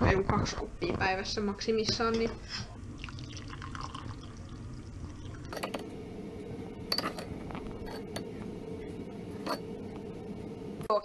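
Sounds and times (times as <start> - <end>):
steady low hum: 0.6 - 11.0
metal spoon clinking on cup: 5.5 - 5.8, 6.9 - 8.3, 9.4 - 9.7.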